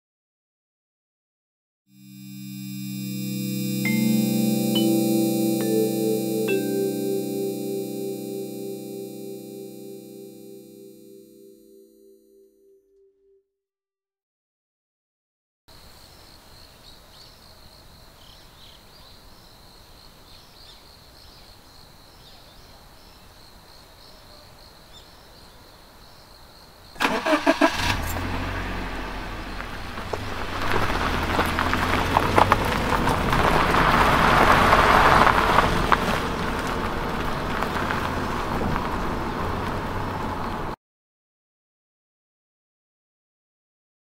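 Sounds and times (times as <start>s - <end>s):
thin steady high tone: 2.0s - 12.6s
car engine starting and running: 27.0s - 40.7s.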